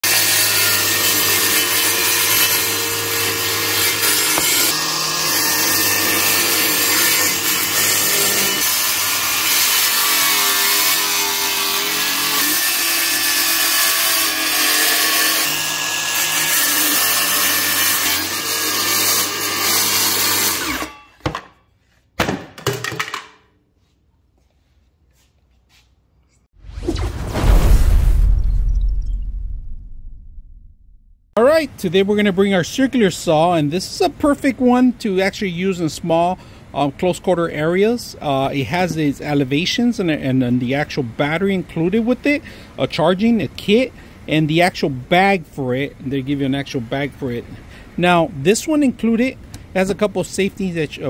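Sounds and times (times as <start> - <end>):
circular saw cutting: 0.0 - 21.1.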